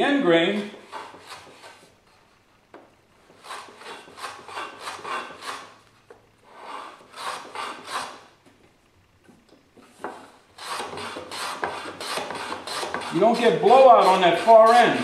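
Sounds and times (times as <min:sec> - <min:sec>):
hand plane cutting wood: 0:00.6 - 0:01.9, 0:03.2 - 0:05.8, 0:06.5 - 0:08.3, 0:09.9 - 0:15.0.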